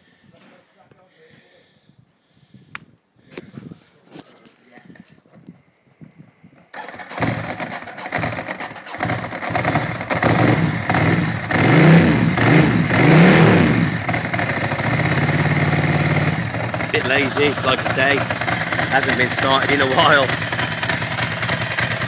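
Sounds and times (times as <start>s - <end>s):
electric starter cranking: 6.7s - 11.9s
motorcycle engine revving: 6.7s - 22.0s
motorcycle engine idling: 6.8s - 13.0s, 13.7s - 22.0s.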